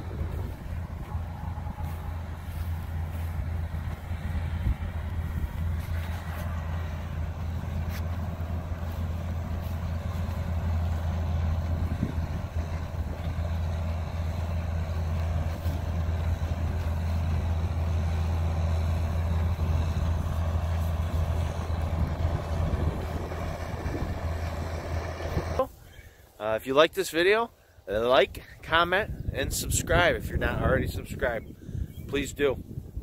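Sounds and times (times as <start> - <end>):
diesel engine droning: 0.0 - 25.8.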